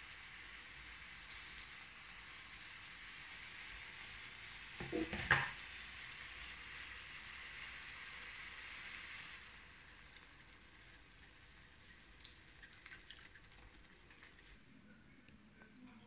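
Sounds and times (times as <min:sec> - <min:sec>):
chicken sizzling in pot: 0:00.0 - 0:14.6.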